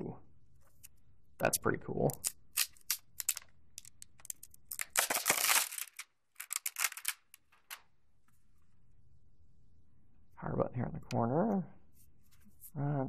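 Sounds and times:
plastic wrapping crinkling: 2.1s - 7.9s.

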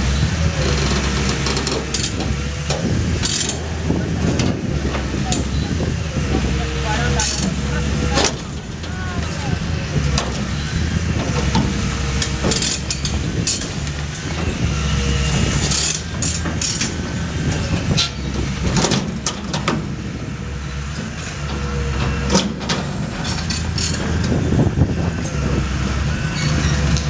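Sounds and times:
diesel engine running under load: 0.0s - 27.0s
hydraulic jaws crunching metal: 0.6s - 5.6s, 11.2s - 19.7s.

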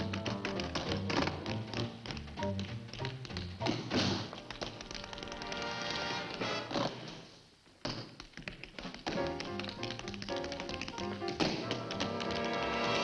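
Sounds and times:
jazz band music: 0.0s - 6.9s, 9.2s - 13.0s
tap shoes on wooden floor: 0.0s - 7.2s, 7.8s - 13.0s
trumpet: 5.3s - 6.9s, 11.6s - 13.0s.

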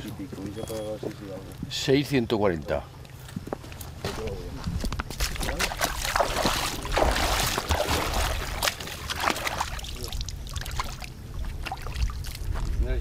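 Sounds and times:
shallow water splashing: 5.1s - 12.6s.

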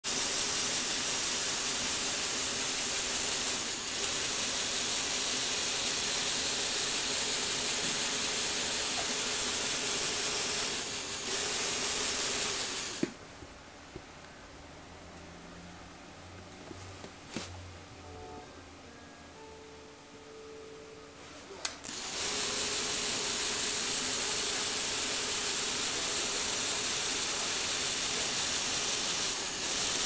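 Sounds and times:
small electric motors whirring: 0.1s - 13.1s, 21.8s - 30.0s.

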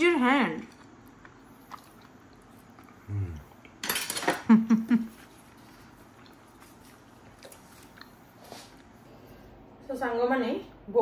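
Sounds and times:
low grunt: 3.1s - 3.5s
cutlery clinking: 3.8s - 4.5s
person laughing: 4.4s - 5.2s.

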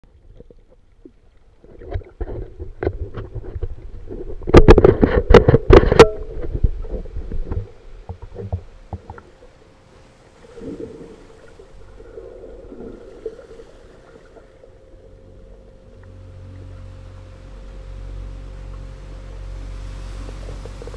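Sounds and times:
water splashing and bubbling: 6.4s - 20.9s
thin steady tone: 8.7s - 20.9s.

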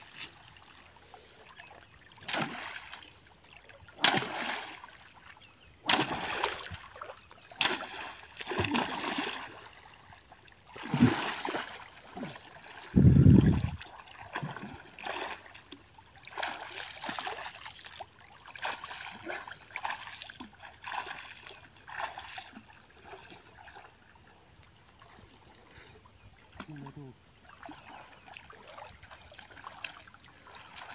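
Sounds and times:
river water splashing: 0.0s - 25.7s, 26.3s - 30.9s
stick striking water: 4.0s - 4.6s, 5.8s - 6.8s, 7.6s - 9.0s
swimming strokes splashing: 4.0s - 4.9s, 5.8s - 9.8s, 10.7s - 12.9s, 13.8s - 15.6s, 16.2s - 23.3s.

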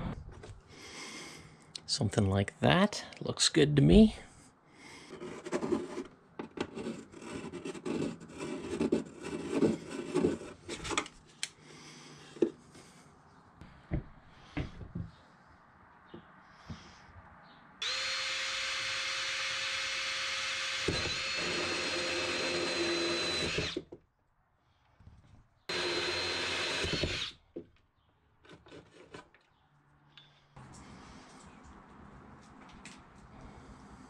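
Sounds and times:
cordless drill boring into wood: 17.8s - 23.9s, 25.7s - 27.4s.

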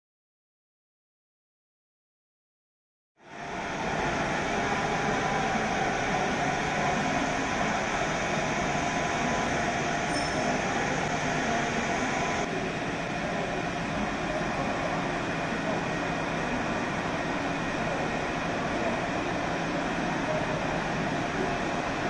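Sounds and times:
station hall hum and hiss: 3.2s - 22.0s.

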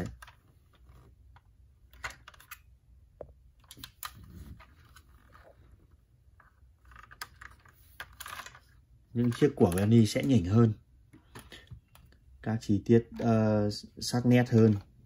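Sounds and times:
toy car clicking and rubbing: 6.5s - 10.6s.

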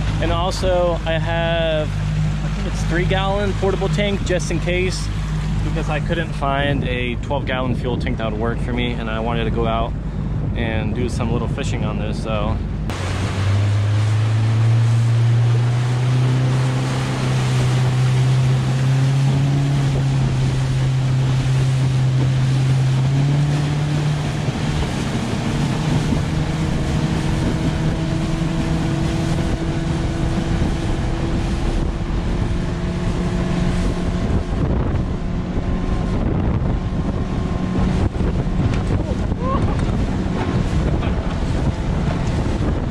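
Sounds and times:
outboard motor running at speed: 0.0s - 42.9s
wind buffeting microphone: 0.0s - 42.9s.

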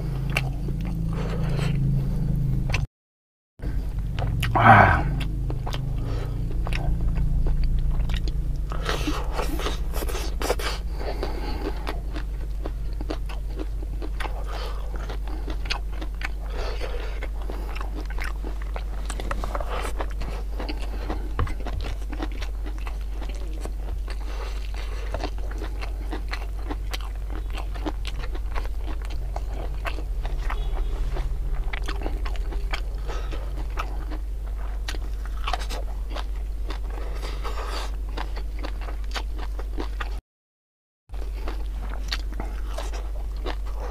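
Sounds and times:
steady low hum: 0.0s - 2.8s, 3.6s - 40.2s, 41.1s - 43.9s
chewing and crunching vegetables: 0.0s - 2.9s, 3.6s - 40.2s, 41.1s - 43.9s
wet mouth sounds: 4.1s - 14.4s.

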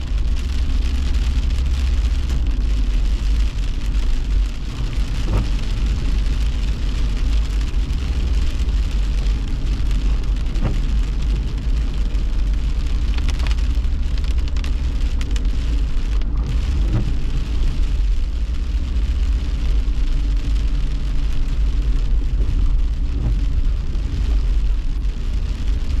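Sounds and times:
car driving on wet road: 0.0s - 26.0s
heavy rain on windshield: 0.0s - 26.0s.

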